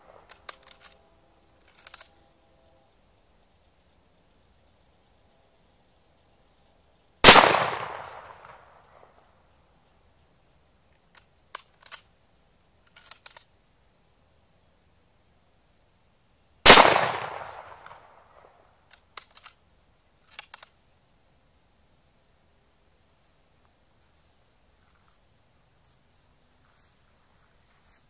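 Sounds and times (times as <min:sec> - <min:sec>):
insects buzzing: 0:00.0 - 0:28.0
rifle bolt clicks: 0:00.3 - 0:01.0, 0:01.6 - 0:02.1, 0:11.1 - 0:12.1, 0:12.9 - 0:13.5, 0:18.9 - 0:19.6, 0:20.3 - 0:20.7
rifle shots echoing: 0:07.2 - 0:08.7, 0:16.7 - 0:18.4.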